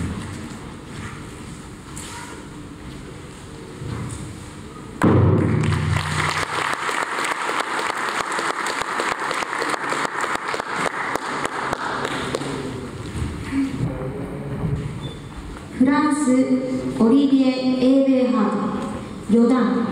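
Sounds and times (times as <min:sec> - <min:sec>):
heavy thud: 0:05.0 - 0:06.0
audience applause: 0:05.5 - 0:13.0.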